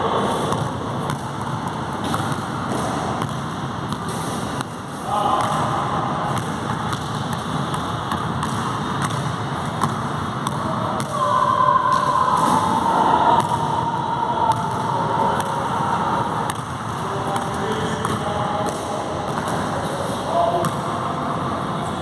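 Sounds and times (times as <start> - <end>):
steady background noise: 0.0 - 22.0
basketball bouncing on court: 0.3 - 11.3, 13.4 - 13.7, 14.5 - 19.7, 20.6 - 20.9.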